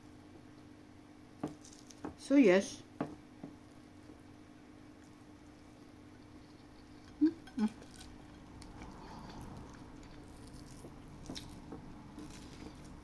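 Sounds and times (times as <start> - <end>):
steady low hum: 0.0 - 13.0
person chewing food: 4.9 - 13.0.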